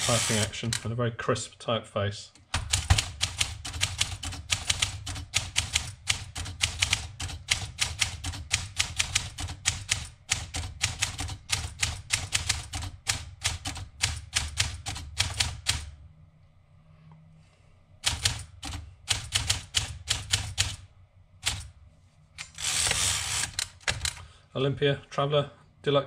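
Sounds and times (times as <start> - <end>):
typewriter keys clacking: 2.6 - 15.9, 18.0 - 20.8, 21.4 - 21.7.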